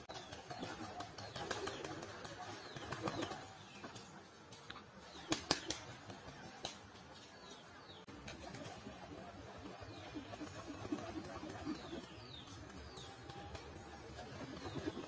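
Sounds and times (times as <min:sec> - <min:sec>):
pigeons flapping wings: 0:00.0 - 0:04.0, 0:05.2 - 0:06.9, 0:08.1 - 0:15.0
sharp wing claps: 0:05.2 - 0:06.8.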